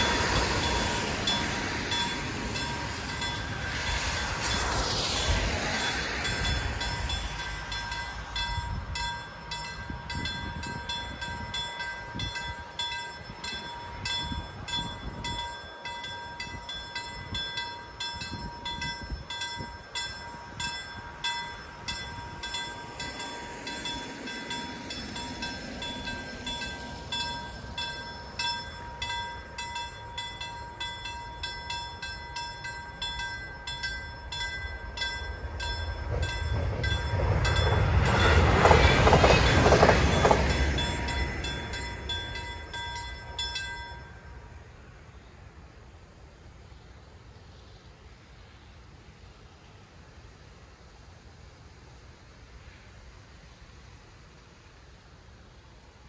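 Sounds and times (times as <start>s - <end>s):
level-crossing bell ringing: 0.0s - 44.6s
approaching train rumble: 0.0s - 56.0s.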